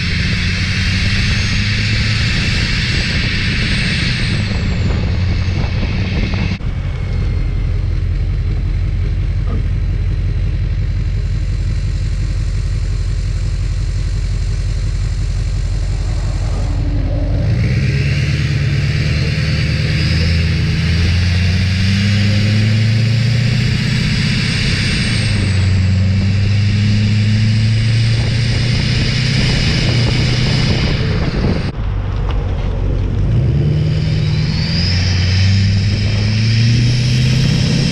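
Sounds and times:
diesel truck exhaust: 0.0s - 37.9s.

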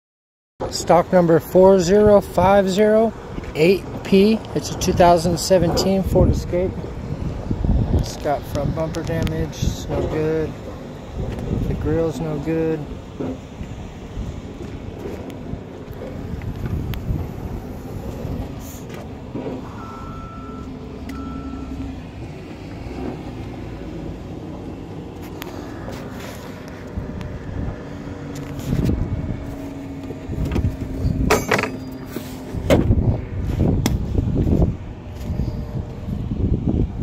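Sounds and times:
vehicle engine rumbling: 0.6s - 37.0s
low bumps: 1.9s - 37.0s
short high beeps: 19.7s - 21.8s.

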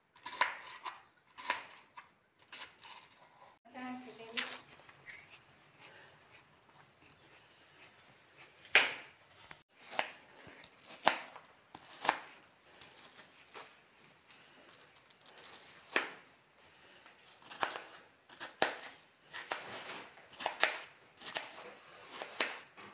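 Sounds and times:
knife chopping on plastic plate: 17.5s - 22.7s.

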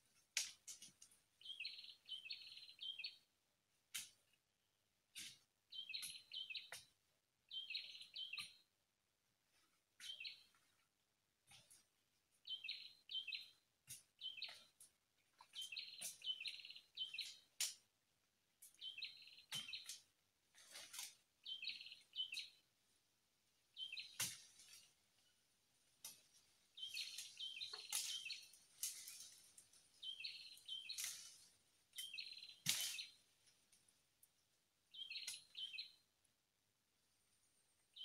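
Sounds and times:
sharp bird ticks: 5.2s - 6.9s, 15.4s - 17.8s, 18.6s - 20.0s, 26.8s - 29.0s, 32.0s - 33.1s, 34.9s - 35.9s.

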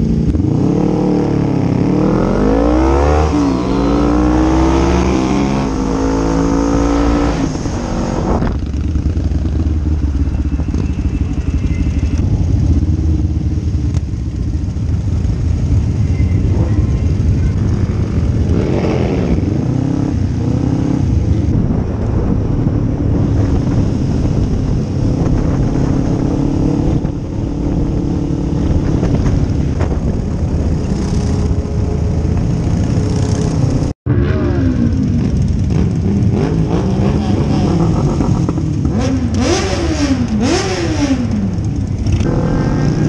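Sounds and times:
motorcycle engine: 0.0s - 43.0s
road and wind noise: 0.0s - 43.0s.

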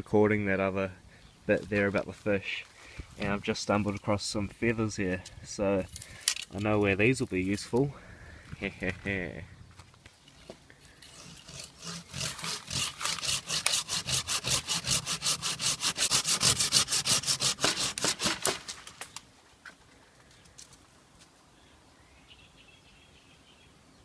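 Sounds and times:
hand saw cutting wood: 10.9s - 18.9s.

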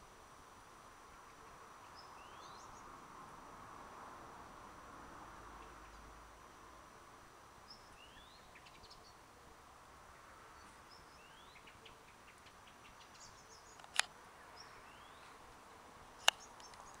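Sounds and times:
bird chirping: 1.0s - 3.0s, 5.5s - 6.2s, 7.6s - 9.3s, 10.1s - 15.6s, 16.2s - 17.0s
sharp clicks: 13.7s - 14.1s, 16.2s - 17.0s
faint ticks: 16.2s - 17.0s.

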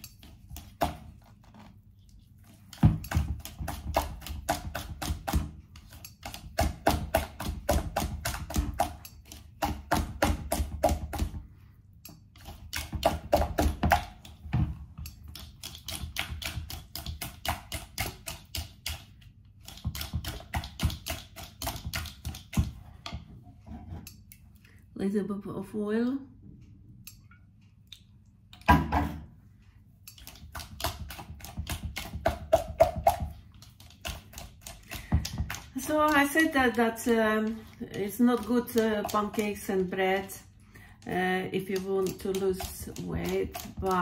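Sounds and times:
utensil tapping plastic bowl: 30.2s - 40.4s, 41.6s - 44.0s.

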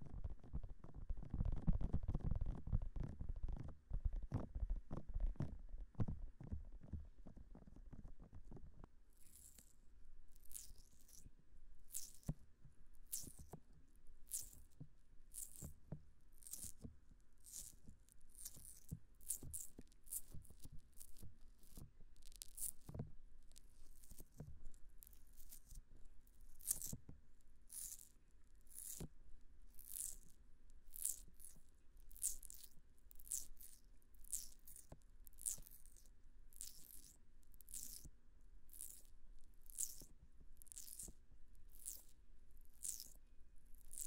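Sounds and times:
fingers rubbing silicone microphone ears: 0.0s - 11.3s, 11.9s - 12.4s, 13.0s - 13.6s, 14.3s - 27.0s, 27.7s - 29.1s, 29.7s - 44.0s.

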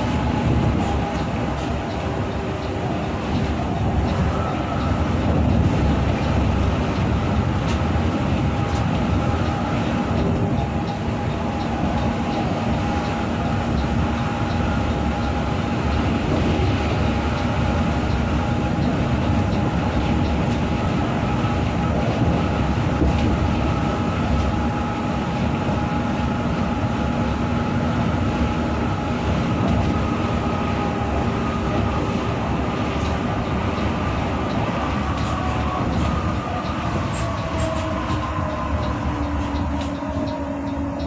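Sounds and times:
bus engine and road noise: 0.0s - 41.0s
constant hums: 0.0s - 41.0s.

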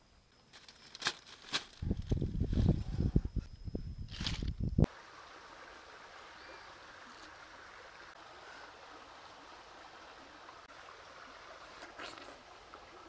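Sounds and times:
faint steady hiss: 4.6s - 13.0s.

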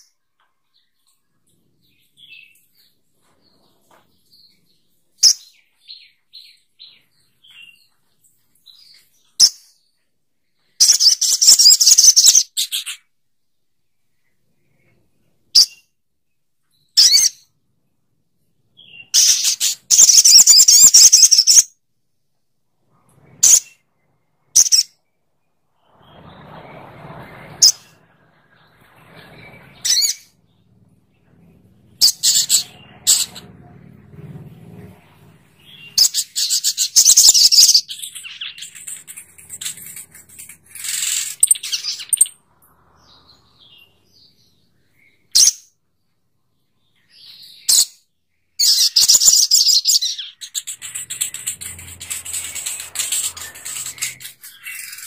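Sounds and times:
sunbird chirping: 18.7s - 21.6s, 22.9s - 47.8s, 48.4s - 55.0s
high rapid bird trills: 18.8s - 21.7s, 25.7s - 45.6s, 48.6s - 55.0s.

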